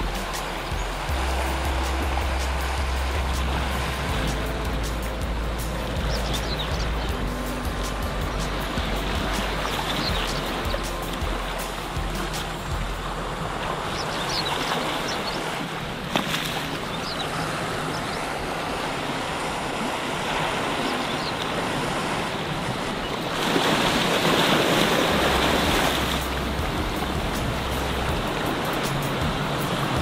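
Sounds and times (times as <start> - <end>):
surf surge: 0.0 - 30.0
sea lapping over rocks: 12.4 - 27.6.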